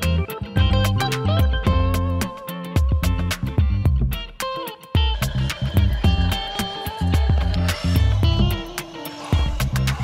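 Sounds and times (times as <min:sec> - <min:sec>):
guitar melody over steady beat: 0:00.0 - 0:05.2.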